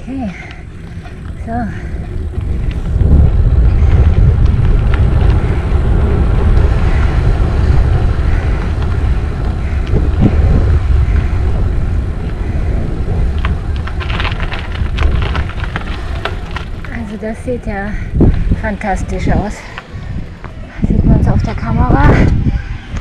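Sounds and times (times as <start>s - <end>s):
bike tyres rolling on gravel: 0.0s - 23.0s
wind rumble on microphone: 0.0s - 23.0s
ticks of grit and rattle: 13.3s - 17.2s.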